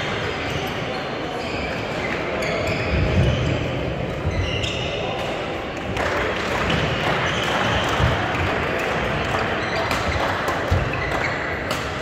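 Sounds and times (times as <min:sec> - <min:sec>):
shoes squeaking on court: 0:00.3 - 0:05.3, 0:09.6 - 0:12.0
racket hitting shuttlecock: 0:09.8 - 0:12.0.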